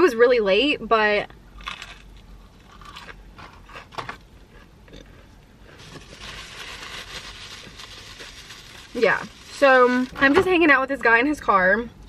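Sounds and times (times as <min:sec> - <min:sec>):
crunchy chewing: 0:01.6 - 0:08.8.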